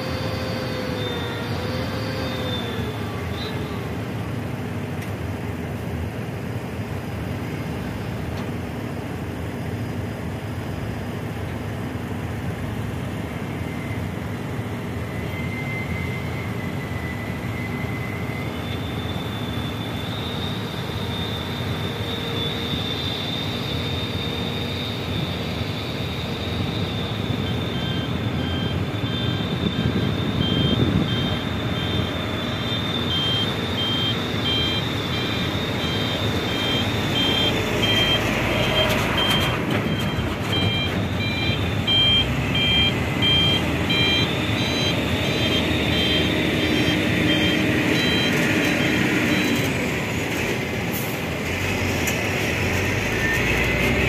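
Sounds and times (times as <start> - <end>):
reversing alarm beeping: 0.0 - 4.1, 12.9 - 51.4, 52.2 - 54.0
diesel truck engine running: 0.0 - 54.0
high steady whine: 0.0 - 54.0.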